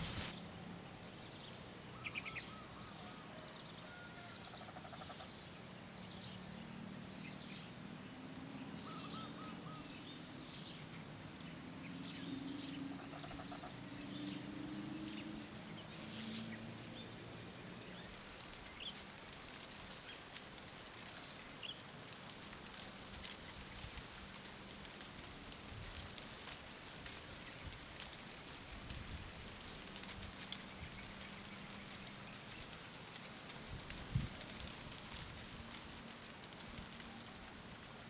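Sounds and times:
small birds chirping: 8.4 - 26.0.

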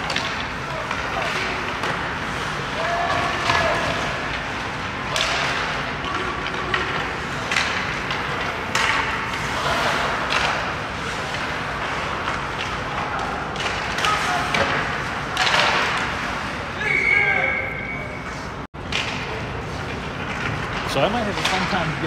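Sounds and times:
sticks and puck hitting boards: 0.0 - 16.3, 18.8 - 19.4, 20.2 - 22.0
skates on ice: 0.0 - 17.3.

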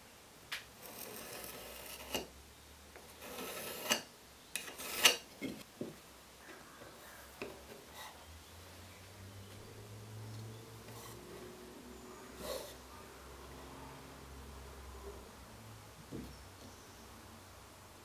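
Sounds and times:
pencil scratching on wood: 10.8 - 11.5.

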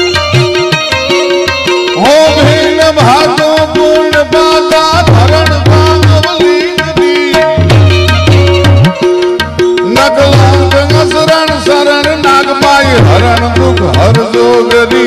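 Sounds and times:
harmonium chords: 0.0 - 15.0
tabla drum rhythm: 0.0 - 15.0.

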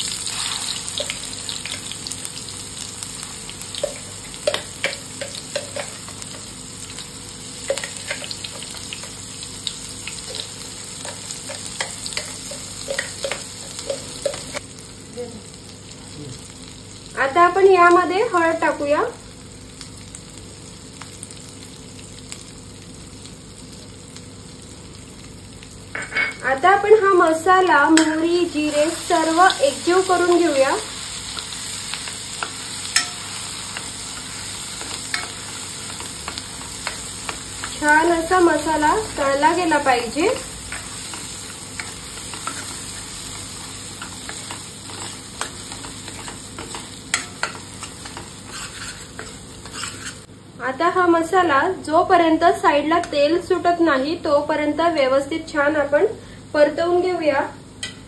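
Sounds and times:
oil sizzling: 0.0 - 50.5
steel spoon scraping pan: 44.0 - 50.3.

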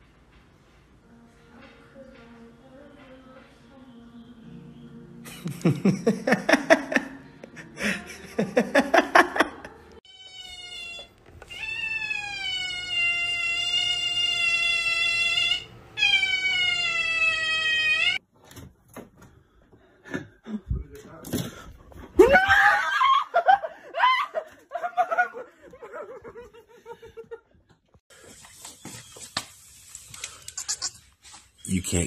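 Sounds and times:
cat yowling: 10.1 - 18.2.

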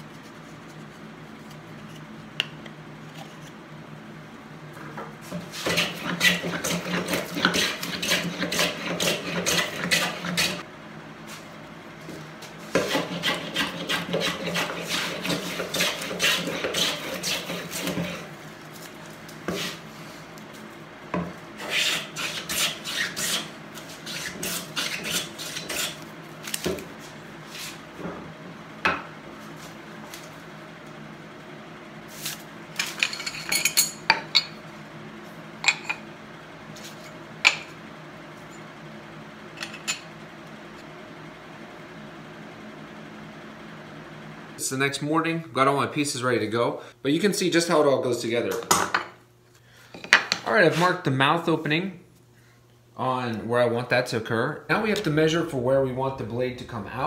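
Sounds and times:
hand plane shaving wood: 5.5 - 10.6, 12.7 - 18.3, 21.6 - 26.0.

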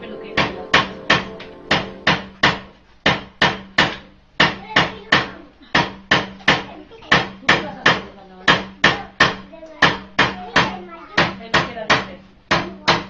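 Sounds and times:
hammer striking copper: 0.4 - 4.9.

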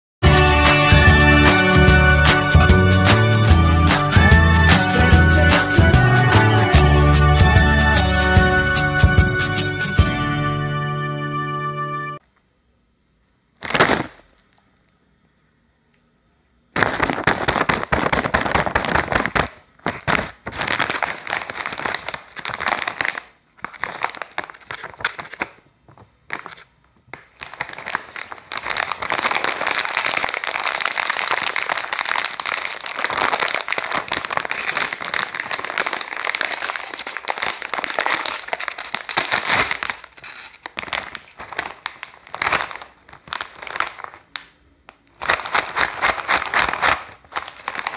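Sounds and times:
plastic snack bag crinkling: 13.6 - 14.6, 16.8 - 47.9.

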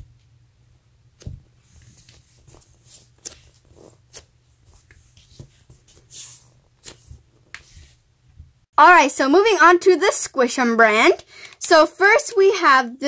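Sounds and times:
soft scratches and rustles: 1.6 - 8.0.

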